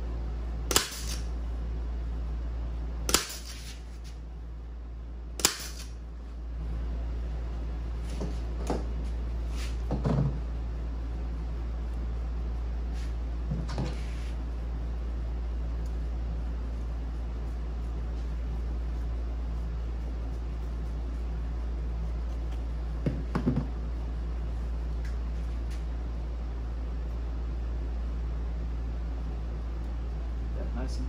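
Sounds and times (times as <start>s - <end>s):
steady low hum: 0.0s - 31.0s
staple gun firing: 0.7s - 1.2s, 3.1s - 3.5s, 5.4s - 5.9s.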